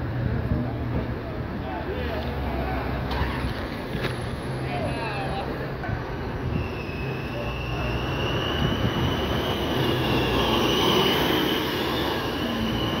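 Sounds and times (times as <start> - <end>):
bus diesel engine: 0.0 - 13.0.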